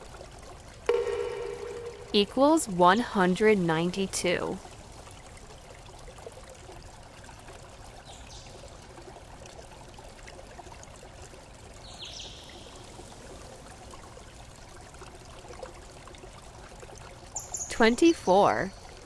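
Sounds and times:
high falling chirps: 0:00.9 - 0:02.5.

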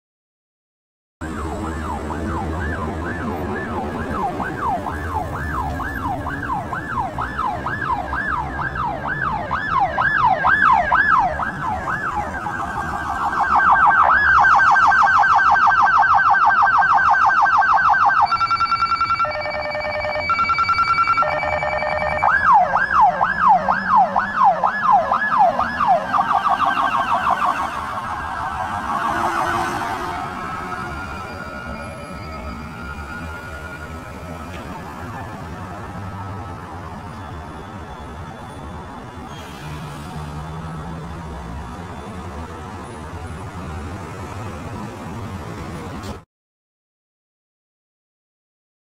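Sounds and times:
police car siren: 0:01.2 - 0:45.4.

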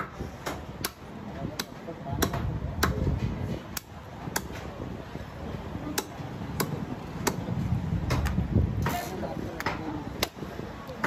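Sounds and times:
cleaver chopping on wooden block: 0:00.0 - 0:04.7, 0:05.9 - 0:07.5.

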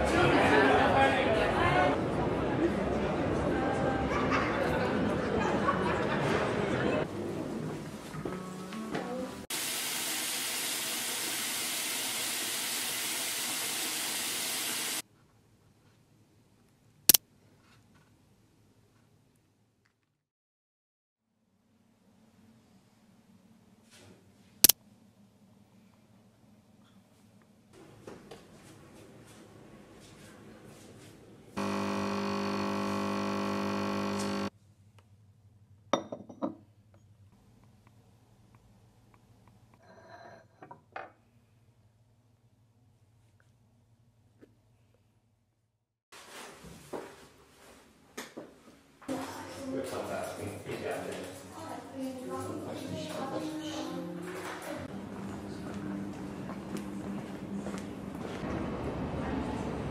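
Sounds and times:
coffee machine pump buzzing: 0:09.5 - 0:15.0, 0:31.6 - 0:34.5.

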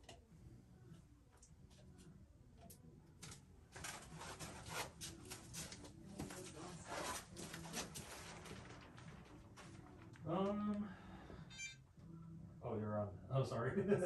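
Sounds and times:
faint low hum: 0:00.0 - 0:04.4, 0:05.1 - 0:14.0
rustling on plastic tarp: 0:03.8 - 0:10.6.

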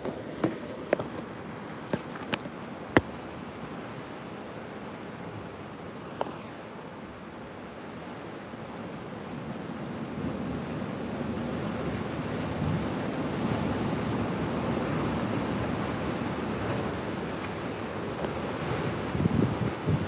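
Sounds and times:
sea surf washing against rocks: 0:00.0 - 0:20.0
wind on microphone: 0:10.2 - 0:20.0.

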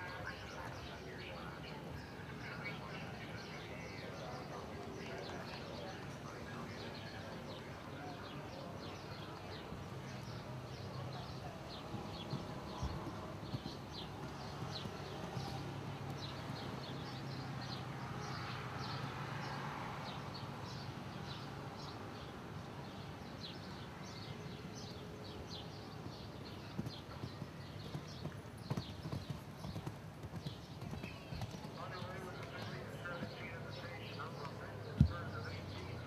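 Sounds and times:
horse hoofbeats on sand: 0:11.2 - 0:17.1, 0:26.1 - 0:33.8.

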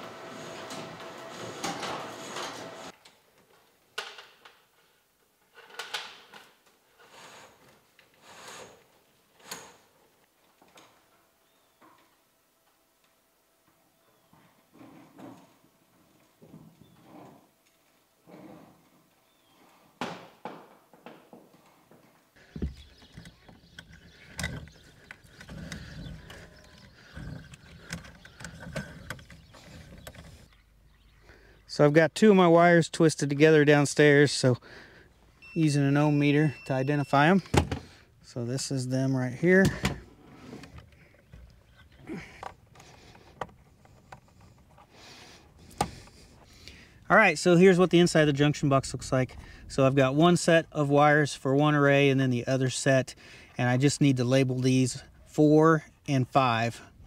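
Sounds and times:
wire scraping in a conduit: 0:00.0 - 0:03.0
wire scraping through conduit: 0:00.0 - 0:03.0, 0:22.8 - 0:30.5.

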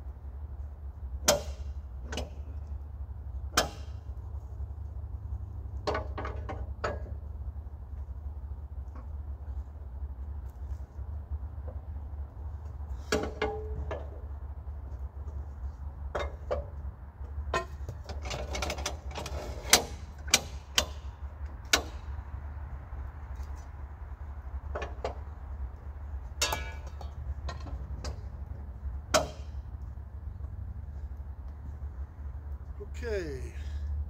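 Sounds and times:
metal clanks and knocks: 0:13.0 - 0:14.4, 0:16.1 - 0:22.2, 0:24.6 - 0:25.4, 0:26.2 - 0:29.7.

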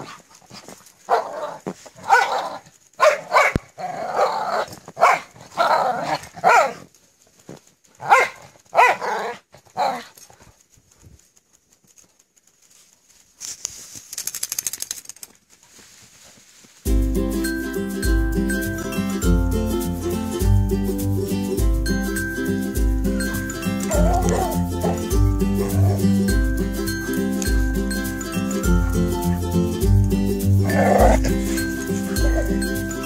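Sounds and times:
dogs barking and growling: 0:00.0 - 0:06.9, 0:08.0 - 0:10.3, 0:23.1 - 0:28.0, 0:28.6 - 0:33.0.

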